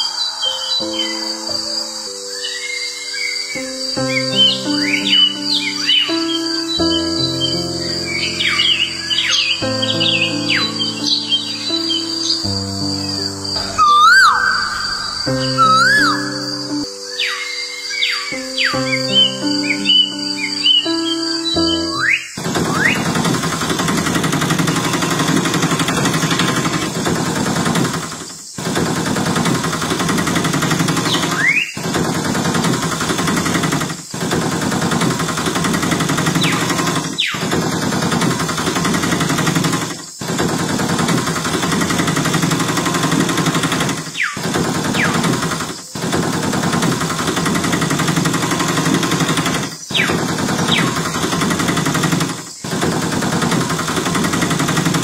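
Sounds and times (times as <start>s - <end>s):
short rising chirps: 8.3s - 23.0s
rapid mechanical rattling: 21.5s - 55.0s.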